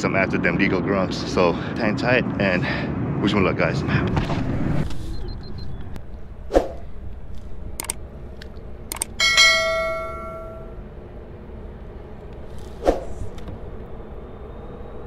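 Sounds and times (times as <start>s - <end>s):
sharp clicks: 7.3s - 9.2s
bell ding: 9.2s - 10.8s.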